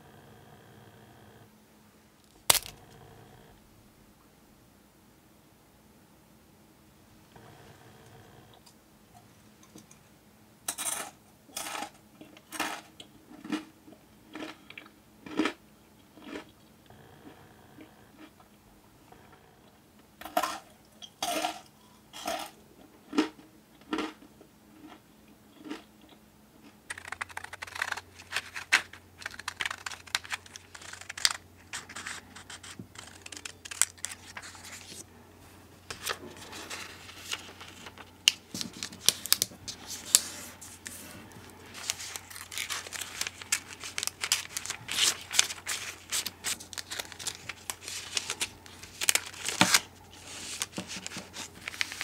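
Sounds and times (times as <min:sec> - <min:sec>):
cellophane bags crinkling: 0:02.3 - 0:02.8, 0:26.9 - 0:35.0, 0:35.9 - 0:52.0.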